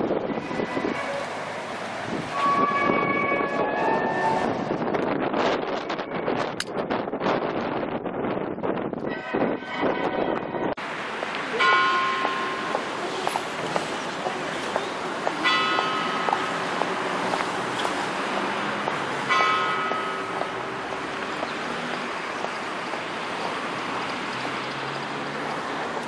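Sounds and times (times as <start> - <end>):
street traffic: 0.0 - 26.0
bell ringing: 11.6 - 13.2, 15.4 - 17.2, 19.3 - 20.8.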